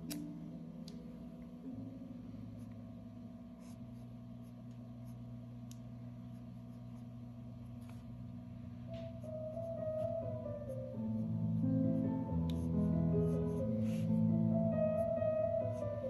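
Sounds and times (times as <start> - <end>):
steady low hum: 0.0 - 16.0
pen nib scratching paper: 3.6 - 5.3, 12.5 - 14.2.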